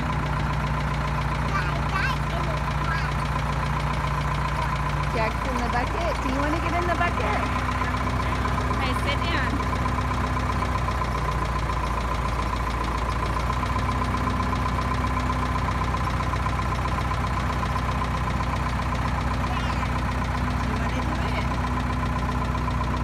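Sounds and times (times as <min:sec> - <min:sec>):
engine idling: 0:00.0 - 0:23.0.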